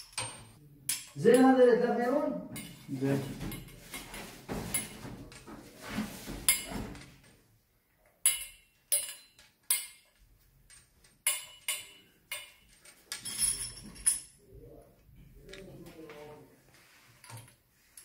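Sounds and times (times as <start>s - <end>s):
metallic clinks and taps: 0.0s - 1.6s, 2.5s - 5.5s, 8.0s - 14.4s.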